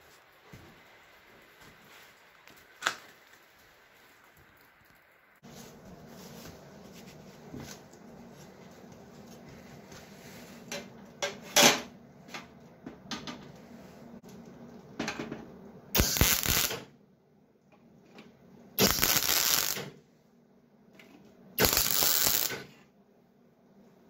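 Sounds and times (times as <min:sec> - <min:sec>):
mig welding burst: 0:15.9 - 0:16.9, 0:18.8 - 0:20.0, 0:21.6 - 0:22.7.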